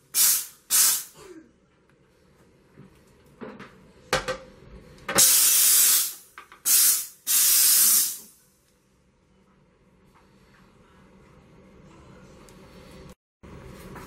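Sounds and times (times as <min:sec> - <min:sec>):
steam cleaner hissing bursts: 0:00.1 - 0:01.1, 0:05.2 - 0:08.3.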